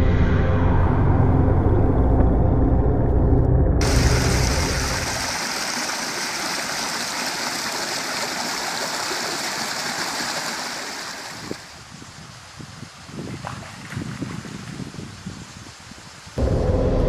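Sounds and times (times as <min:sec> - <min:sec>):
stream rushing over rocks: 0:03.8 - 0:11.9.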